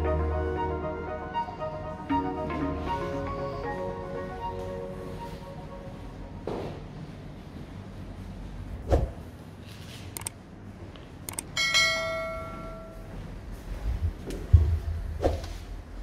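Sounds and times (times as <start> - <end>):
short clicks: 10.2 - 10.4
bright bell ring: 11.6 - 13.2.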